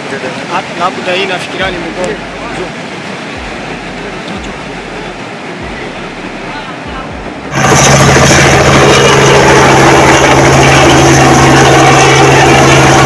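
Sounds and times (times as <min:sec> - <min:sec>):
helicopter flying low: 0:05.3 - 0:13.0.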